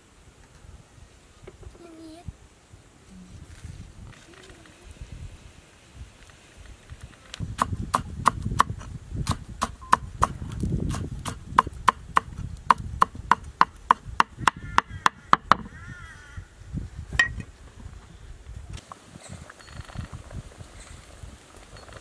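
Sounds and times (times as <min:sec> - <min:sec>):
cleaver chopping on wooden board: 0:07.6 - 0:15.7.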